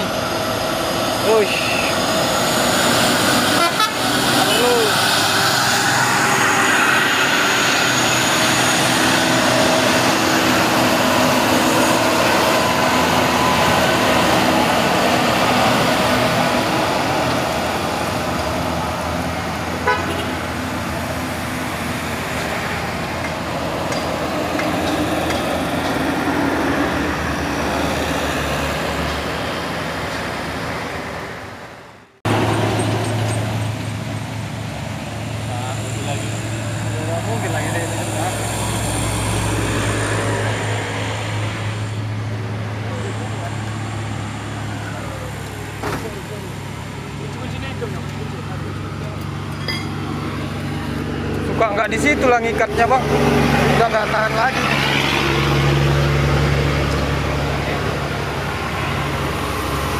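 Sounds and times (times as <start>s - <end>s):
low engine drone: 0.0s - 23.6s
heavy diesel trucks climbing: 0.0s - 59.9s
vehicle horn tooting: 3.6s - 4.8s, 19.8s - 20.4s.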